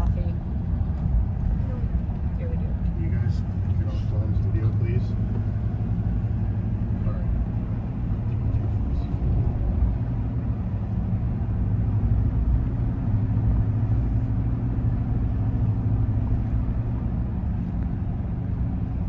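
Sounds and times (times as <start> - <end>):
tyres on paved road: 0.0 - 19.0
vehicle engine hum: 0.0 - 19.0.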